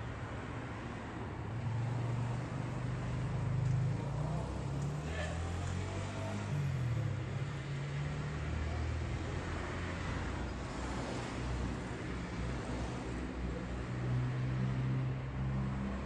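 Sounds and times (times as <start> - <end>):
background noise: 0.0 - 16.0.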